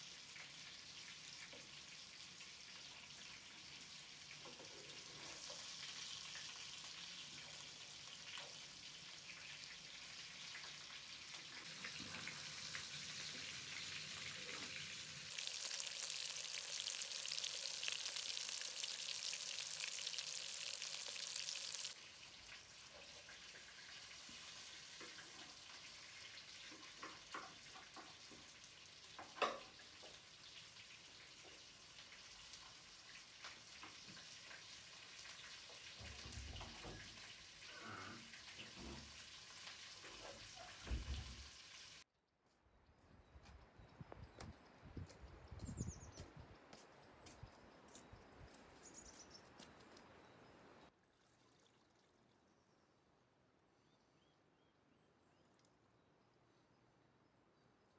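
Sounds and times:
meatballs sizzling in oil: 0.0s - 37.6s, 38.4s - 42.0s.

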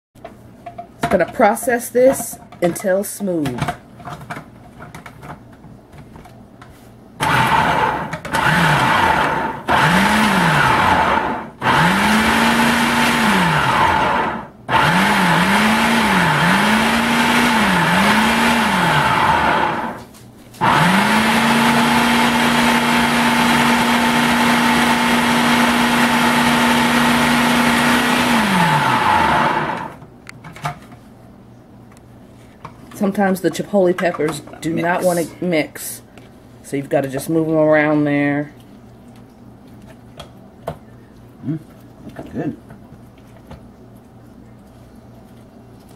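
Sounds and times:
food processor motor: 7.2s - 20.0s, 20.6s - 30.0s.

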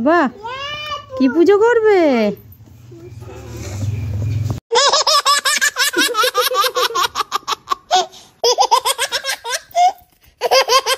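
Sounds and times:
baby laughing: 4.7s - 10.9s.

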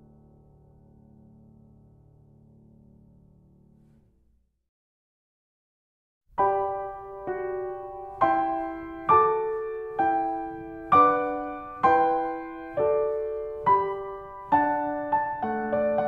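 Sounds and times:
slow keyboard melody: 6.4s - 16.0s.

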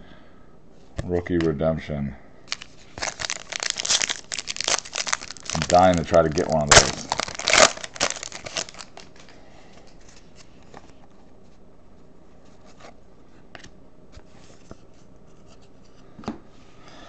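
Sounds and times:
foil wrapper crinkling and tearing: 2.5s - 9.4s
cards rustling: 2.5s - 11.0s.

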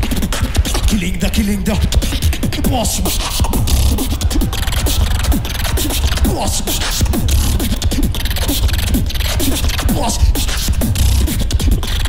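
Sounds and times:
beatboxing: 0.0s - 12.0s.

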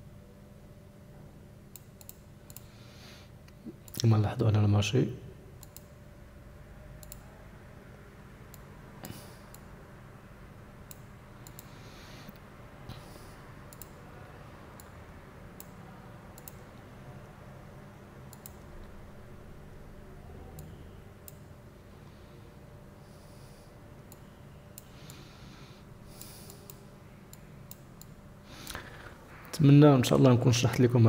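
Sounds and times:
low room hum: 0.0s - 31.0s
computer mouse clicking: 1.7s - 2.7s, 5.6s - 5.9s, 7.0s - 7.3s, 8.5s - 9.7s, 10.9s - 13.0s, 13.7s - 14.0s, 14.8s - 15.0s, 15.6s - 15.8s, 16.4s - 16.7s, 18.3s - 19.0s, 20.5s - 21.5s, 26.1s - 28.8s.

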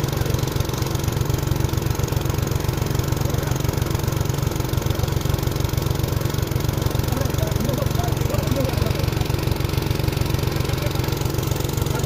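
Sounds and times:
tractor diesel engine chugging: 0.0s - 12.0s.

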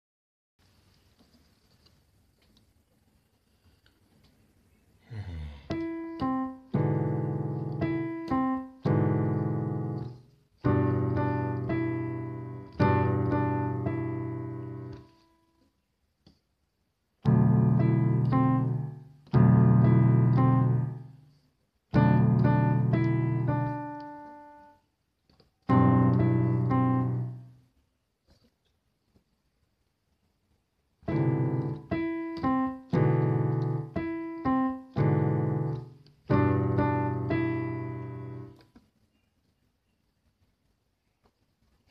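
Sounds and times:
piano chords: 5.7s - 15.2s, 17.2s - 21.2s, 21.9s - 24.8s, 25.7s - 27.6s, 31.0s - 38.6s.

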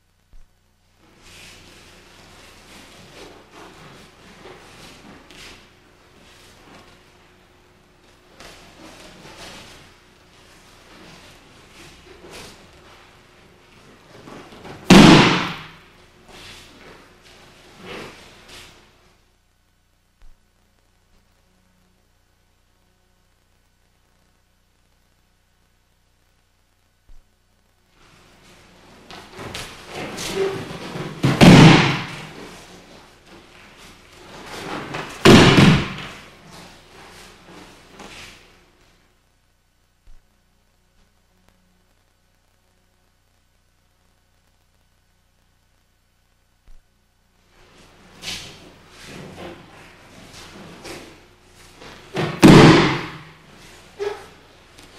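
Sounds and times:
body slapping onto mat: 14.1s - 17.0s, 29.1s - 33.0s, 34.3s - 38.4s, 51.8s - 53.4s.

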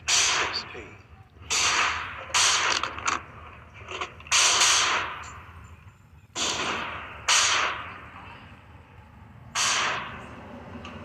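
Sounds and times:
gunshots with ringing decay: 0.0s - 5.6s, 6.3s - 8.3s, 9.5s - 10.3s.

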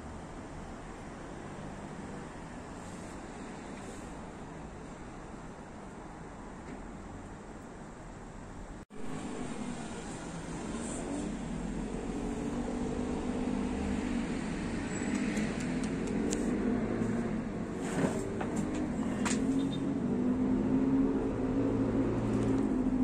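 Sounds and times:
traffic engines humming: 0.0s - 23.0s
sharp clicks: 15.0s - 16.4s.

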